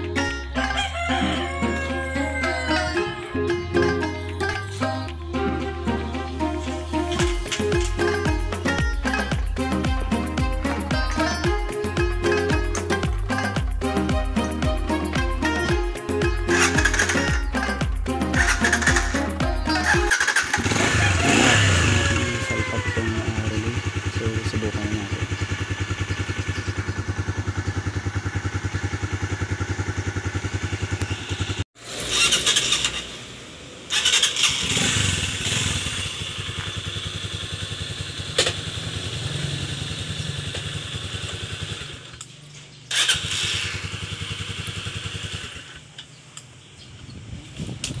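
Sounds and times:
motorcycle engine revving: 0:06.9 - 0:46.0
motorcycle engine idling: 0:07.2 - 0:31.6, 0:33.9 - 0:46.7.

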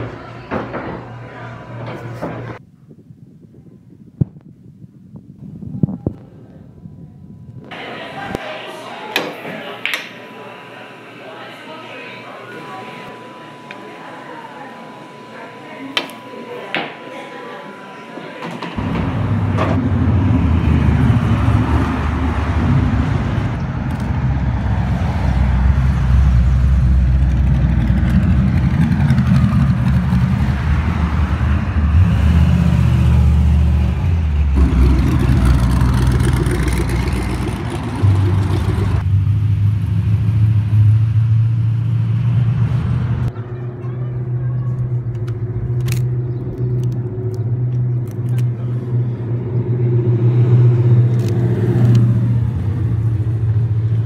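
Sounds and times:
steady engine hum: 0:09.6 - 0:54.0
drag cars revving past: 0:18.8 - 0:43.3, 0:48.8 - 0:54.0.

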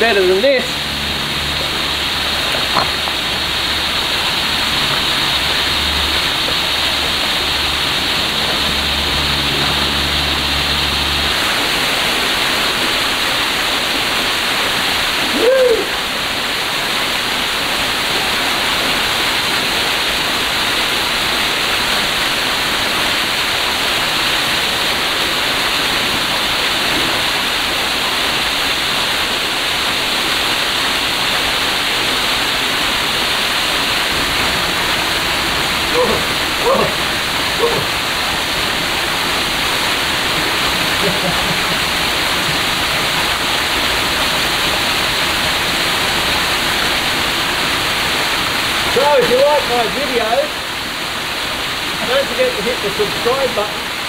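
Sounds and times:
water rushing over rocks: 0:00.0 - 0:54.0
low rumble: 0:00.6 - 0:12.3.

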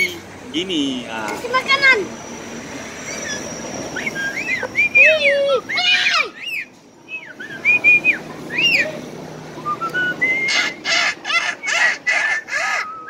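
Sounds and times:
myna harsh calls: 0:03.0 - 0:06.7
myna whistling: 0:03.0 - 0:08.9, 0:09.6 - 0:10.8, 0:11.6 - 0:13.0.

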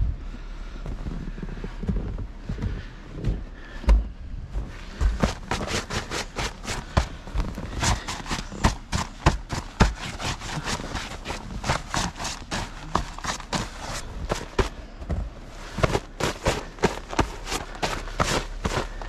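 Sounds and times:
snow crunching and scraping: 0:04.5 - 0:19.0.

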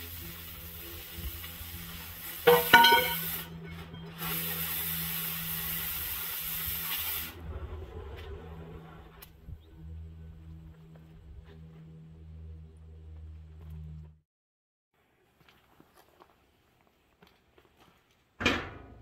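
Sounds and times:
cutting torch hissing: 0:00.0 - 0:07.5
steady low hum: 0:07.3 - 0:14.2.

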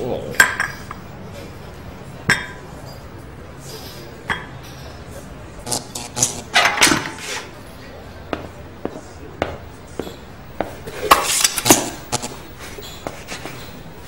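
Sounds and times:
crockery and cutlery clatter: 0:06.0 - 0:07.9
hard-soled footsteps: 0:08.3 - 0:13.7.

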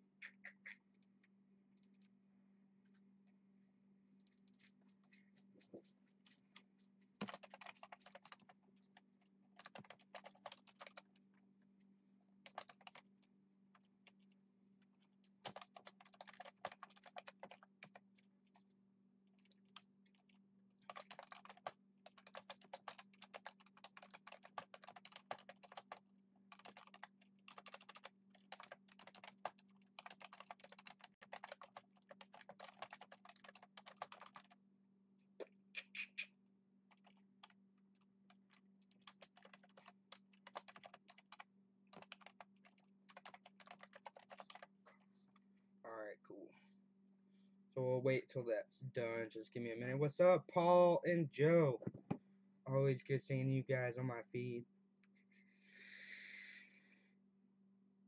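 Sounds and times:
typing on computer keyboard: 0:04.2 - 0:11.2, 0:12.4 - 0:13.1, 0:15.4 - 0:18.6, 0:19.4 - 0:34.6, 0:36.9 - 0:37.6, 0:38.3 - 0:44.7.

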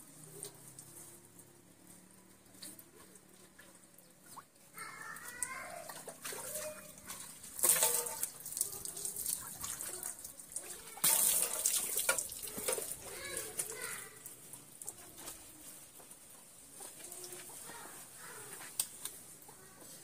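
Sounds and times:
water splashing onto concrete: 0:02.4 - 0:15.3.

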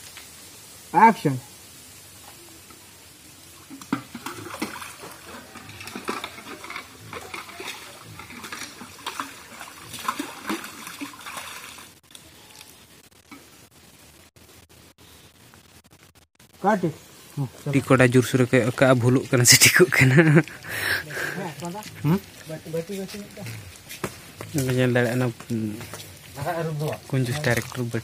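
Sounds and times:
water splashing and sloshing: 0:03.4 - 0:12.1, 0:18.5 - 0:28.0.

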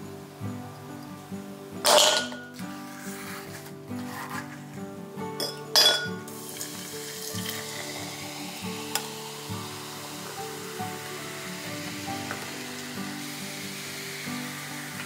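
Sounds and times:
soft background music: 0:00.0 - 0:15.0
glass clink: 0:01.8 - 0:02.6, 0:05.4 - 0:06.3
carbonated drink fizzing: 0:05.4 - 0:15.0.

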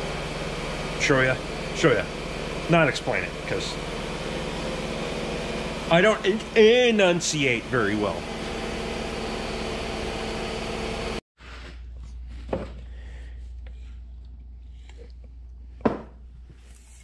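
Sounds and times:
motor humming: 0:00.0 - 0:11.2.

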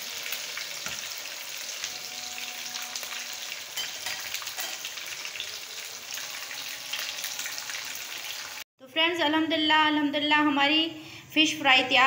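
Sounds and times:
fish deep-frying in oil: 0:00.0 - 0:08.7.

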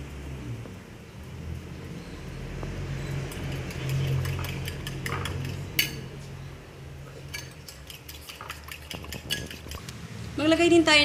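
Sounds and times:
spoon clinking ceramic bowl: 0:03.5 - 0:06.1, 0:07.3 - 0:09.7.

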